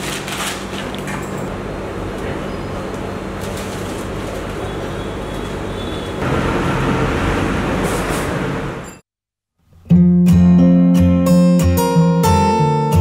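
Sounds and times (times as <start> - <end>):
passing vehicles: 6.2 - 8.8.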